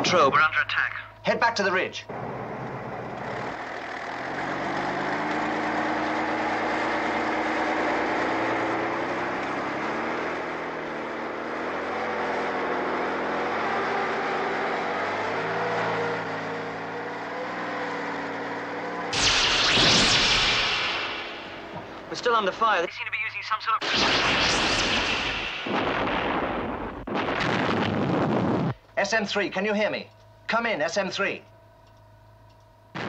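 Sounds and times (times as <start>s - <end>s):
tracked vehicle engine running: 2.0s - 20.2s.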